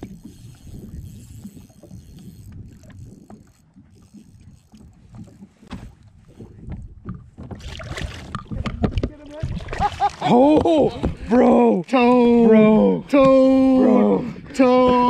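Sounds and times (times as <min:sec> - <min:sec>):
wind buffeting microphone: 0:00.0 - 0:09.9
water lapping against boat: 0:00.0 - 0:15.0.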